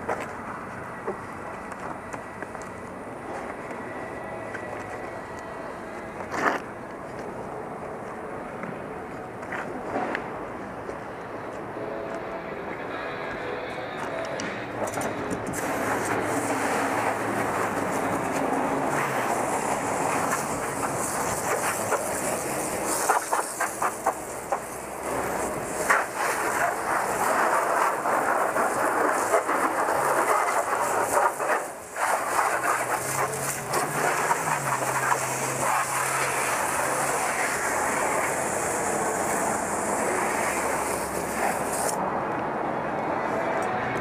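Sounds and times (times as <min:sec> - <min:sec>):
pressure washer spraying car: 0:15.5 - 0:42.0.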